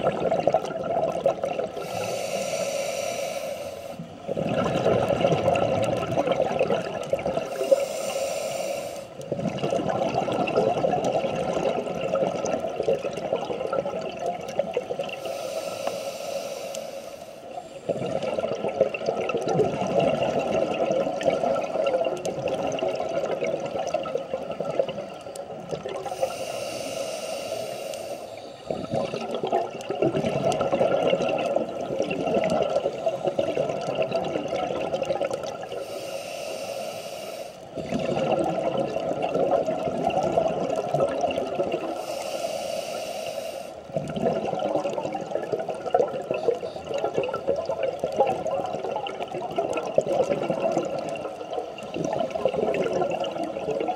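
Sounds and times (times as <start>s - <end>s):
diver exhaling bubbles: 0.0s - 2.5s, 4.2s - 7.8s, 9.3s - 15.2s, 17.9s - 25.1s, 28.7s - 35.8s, 37.8s - 42.0s, 43.9s - 53.9s
regulator hissing inhale: 1.8s - 4.2s, 7.4s - 9.2s, 15.2s - 17.9s, 26.0s - 29.2s, 35.7s - 37.9s, 41.9s - 43.9s.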